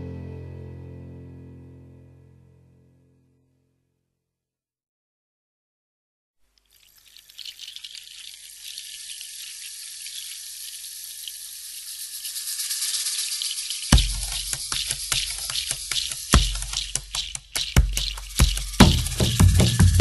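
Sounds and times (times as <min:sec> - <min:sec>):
crackling hiss of running water: 0:06.5 - 0:20.0.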